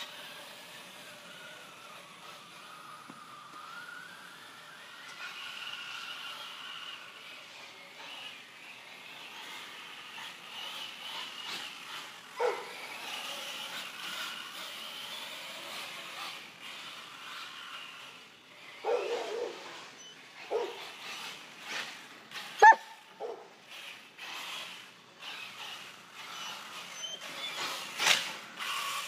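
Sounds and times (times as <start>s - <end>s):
faint electric motor whine: 0.0s - 29.0s
dog barking: 12.4s - 12.8s, 18.8s - 19.6s, 20.5s - 20.8s, 22.6s - 23.5s.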